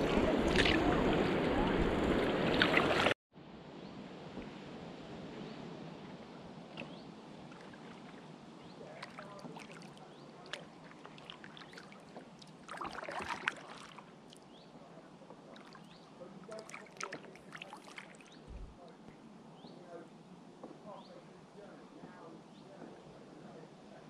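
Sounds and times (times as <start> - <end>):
paddle splashing in water: 0.0 - 3.2, 6.0 - 19.0.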